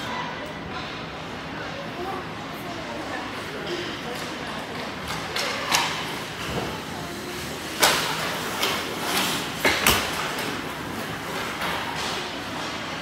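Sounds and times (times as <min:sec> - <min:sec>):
voices echoing in rink: 0:00.0 - 0:13.0
hockey sticks and puck cracking: 0:03.7 - 0:13.0
skate blades scraping ice: 0:06.8 - 0:12.9.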